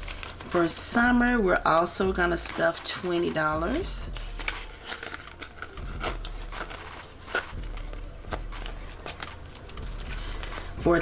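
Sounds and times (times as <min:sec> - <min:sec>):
plastic envelope crinkling: 0:00.0 - 0:00.9, 0:04.0 - 0:11.0.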